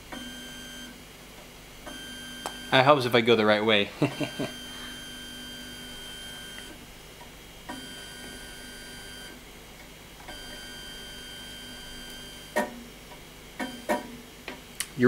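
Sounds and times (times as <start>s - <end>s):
stepper motor whine: 4.0s - 7.0s, 7.7s - 9.4s, 10.2s - 12.6s.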